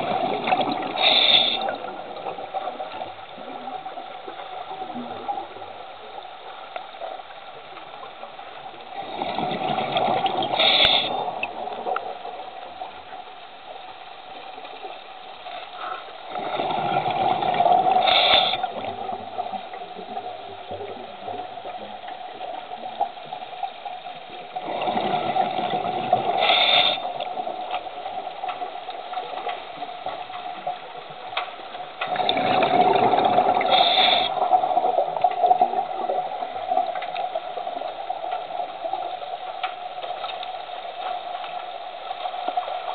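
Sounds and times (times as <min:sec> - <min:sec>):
diver exhaling bubbles: 0:32.1 - 0:34.9.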